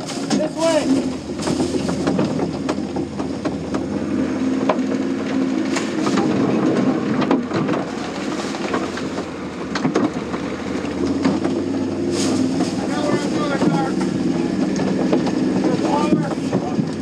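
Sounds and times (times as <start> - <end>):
plywood body rattling: 0.0 - 17.0
sharp knocks: 11.1 - 17.0.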